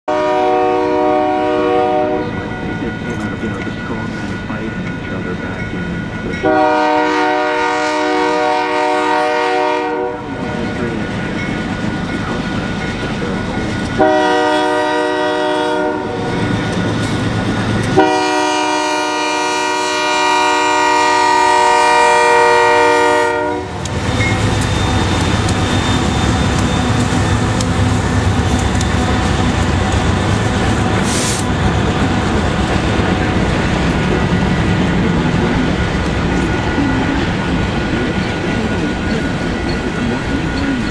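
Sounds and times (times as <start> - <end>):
locomotive air horn blasts: 0.1 - 2.4, 6.4 - 10.3, 14.0 - 16.3, 17.9 - 23.8
locomotive engine rumble: 0.1 - 40.9.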